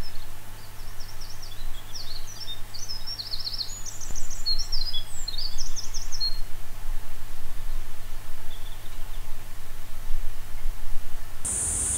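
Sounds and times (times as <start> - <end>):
songbirds chirping: 0.0 - 6.4, 11.5 - 11.9
low background hum: 11.4 - 11.9.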